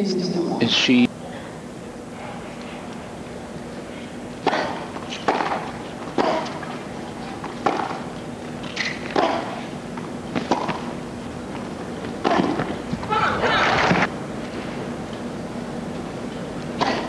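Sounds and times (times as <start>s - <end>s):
racket hitting tennis ball: 4.4s - 9.7s, 10.3s - 10.9s, 12.1s - 12.9s.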